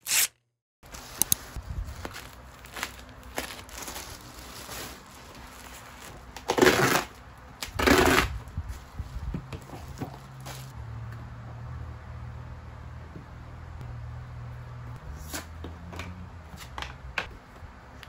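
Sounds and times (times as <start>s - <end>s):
plastic wrapping crinkling: 0.8s - 9.2s.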